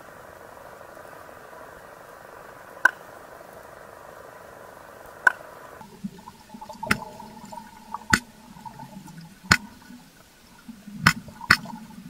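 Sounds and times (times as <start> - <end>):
faint water noise: 0.0 - 12.0
stingray clicking underwater: 5.3 - 12.0.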